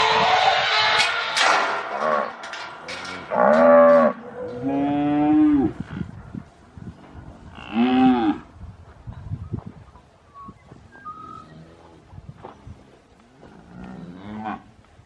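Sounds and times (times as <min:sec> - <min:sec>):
cattle mooing: 0:02.0 - 0:05.8.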